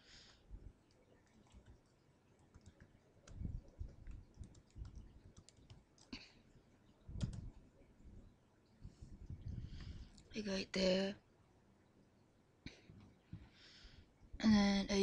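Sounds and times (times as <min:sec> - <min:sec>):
keyboard keys clicking: 0:02.5 - 0:06.1, 0:07.2 - 0:07.5.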